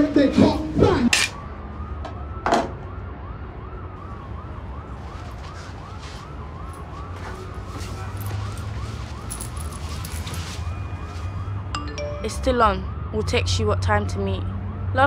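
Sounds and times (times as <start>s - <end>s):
faint emergency siren wailing: 0.0s - 15.0s.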